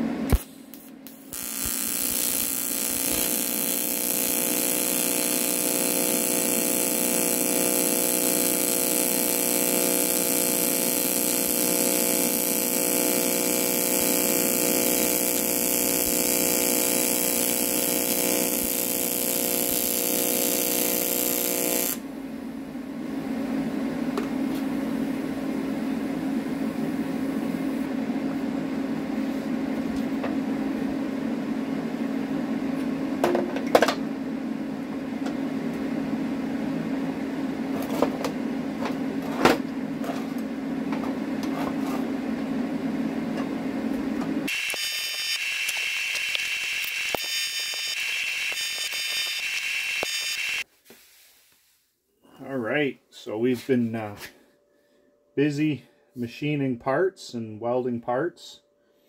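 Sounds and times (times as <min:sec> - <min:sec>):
welding arc buzzing: 0:00.0 - 0:22.1, 0:44.4 - 0:50.7.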